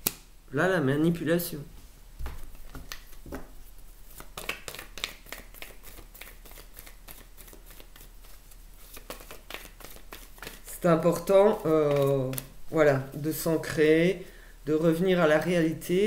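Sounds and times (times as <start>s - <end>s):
cards shuffling: 2.2s - 13.3s.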